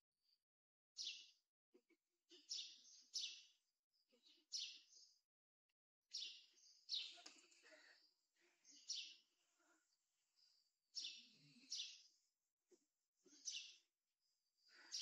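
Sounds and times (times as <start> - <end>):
small bird chirping: 1.0 - 1.4, 2.3 - 5.2, 6.1 - 9.8, 10.4 - 12.3, 13.3 - 13.9.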